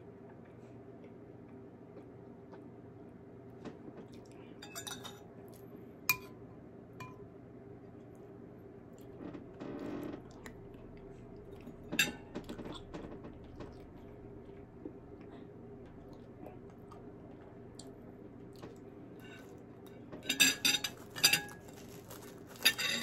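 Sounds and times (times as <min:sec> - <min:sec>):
metal spoon clinking on bowl: 0:04.6 - 0:05.2, 0:06.1 - 0:06.4, 0:20.2 - 0:21.6.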